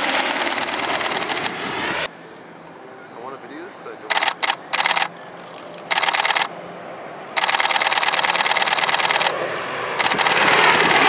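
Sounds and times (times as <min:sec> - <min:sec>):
camera shutter burst clicks: 0:04.1 - 0:06.5, 0:07.3 - 0:09.4, 0:10.0 - 0:10.5.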